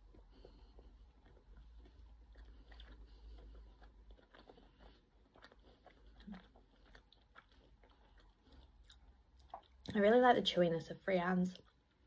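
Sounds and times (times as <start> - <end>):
chewing soft cake: 0.0 - 12.0
wet mouth clicks: 0.1 - 10.0.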